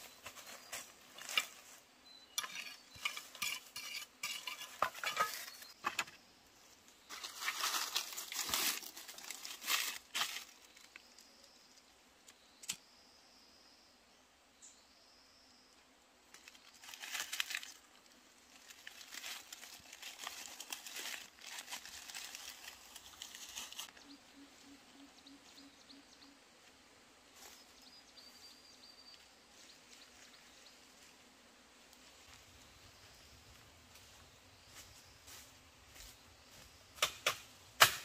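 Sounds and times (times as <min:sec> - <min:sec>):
dry leaves crackling in fire: 0:07.1 - 0:11.3, 0:16.3 - 0:24.0.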